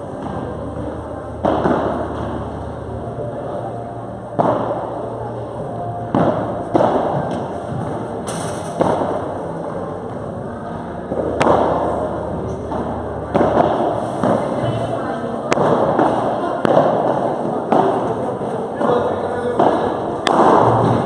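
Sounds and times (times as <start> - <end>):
ball hit by rackets: 1.3 - 2.5, 4.4 - 5.0, 6.1 - 9.3, 11.1 - 14.8, 15.5 - 21.0.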